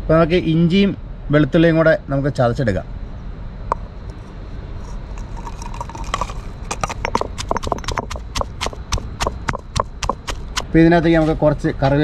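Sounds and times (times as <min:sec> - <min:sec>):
stone pestle pounding in mortar: 0:05.7 - 0:10.7.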